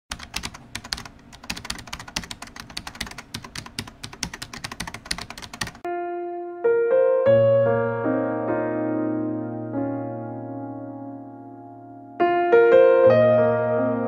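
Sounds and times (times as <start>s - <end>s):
typing on computer keyboard: 0.1s - 5.9s
sustained piano notes: 5.9s - 14.0s.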